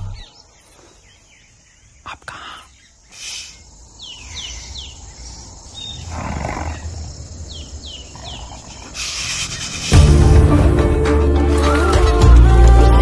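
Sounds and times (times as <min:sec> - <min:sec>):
tiger growling: 0:05.9 - 0:07.0, 0:07.8 - 0:10.1.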